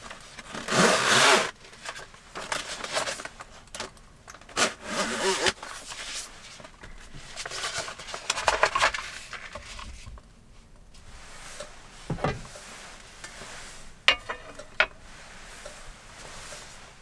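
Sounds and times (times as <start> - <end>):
plastic sheet crinkling: 1.7 - 10.1.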